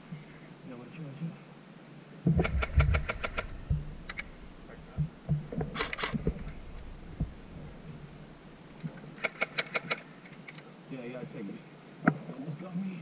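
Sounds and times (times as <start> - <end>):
airsoft gun shots: 2.3 - 4.8.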